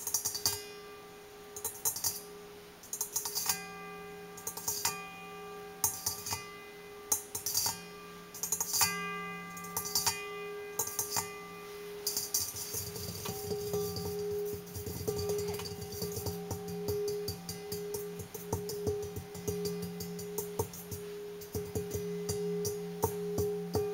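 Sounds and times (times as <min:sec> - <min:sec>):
metal bowl ringing: 0:00.0 - 0:23.9
metal bowl tapped with fingers: 0:08.4 - 0:11.4, 0:12.0 - 0:23.9
hands scraping rustling bowl: 0:12.0 - 0:23.7.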